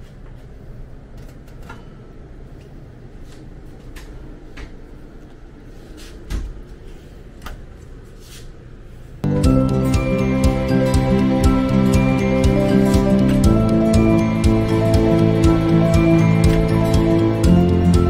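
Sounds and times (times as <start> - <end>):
music: 9.2 - 18.0.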